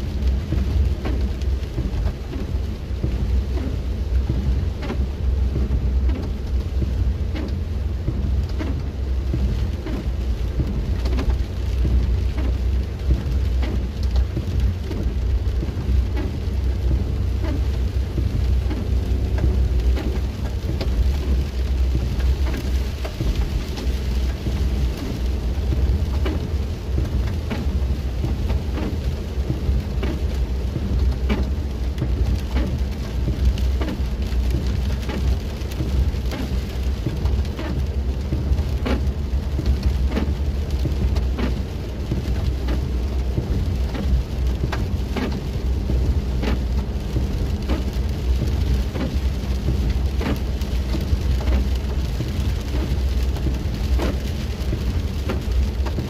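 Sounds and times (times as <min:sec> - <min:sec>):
engine and tyre rumble: 0:00.0 - 0:56.0
rain clicking on windshield: 0:00.0 - 0:56.0.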